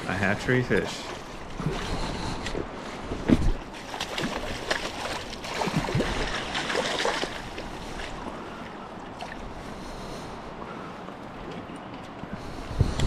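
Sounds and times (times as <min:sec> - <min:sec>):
water splashing: 0:00.0 - 0:10.0
river current rushing: 0:03.6 - 0:11.5.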